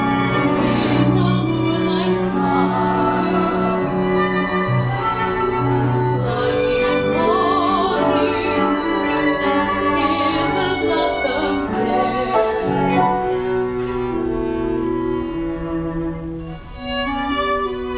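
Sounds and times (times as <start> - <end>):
chamber ensemble playing: 0.0 - 17.9
woman singing with vibrato: 0.2 - 3.9, 5.6 - 13.1.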